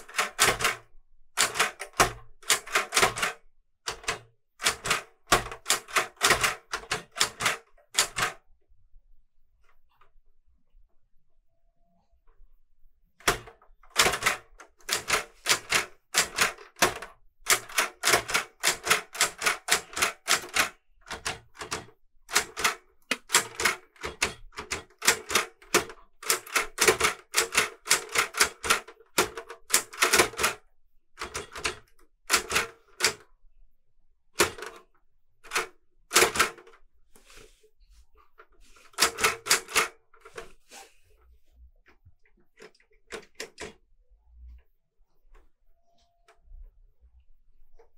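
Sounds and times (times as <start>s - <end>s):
typewriter typing: 0.0s - 8.4s, 13.2s - 30.6s, 31.2s - 33.3s, 34.4s - 36.8s, 38.7s - 40.5s, 42.5s - 43.8s.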